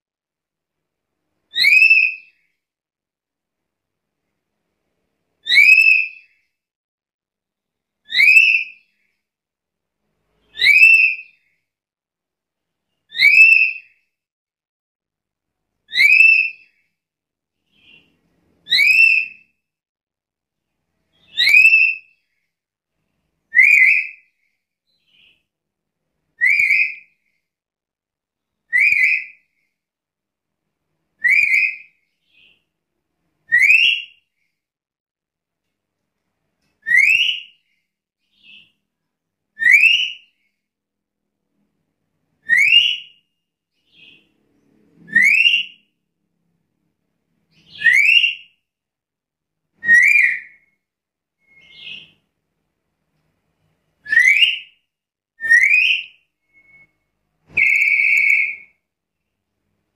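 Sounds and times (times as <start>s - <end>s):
parrot whistled calls: 1.5s - 2.2s, 5.4s - 6.2s, 8.1s - 8.8s, 10.5s - 11.3s, 13.1s - 13.8s, 15.9s - 16.7s, 18.6s - 19.4s, 21.2s - 22.1s, 23.5s - 24.2s, 26.4s - 27.1s, 28.7s - 29.4s, 31.2s - 31.9s, 33.5s - 34.2s, 36.8s - 37.5s, 39.6s - 40.2s, 42.4s - 43.2s, 45.0s - 45.8s, 47.7s - 48.5s, 49.8s - 50.6s, 51.4s - 52.2s, 54.0s - 54.8s, 55.4s - 58.7s.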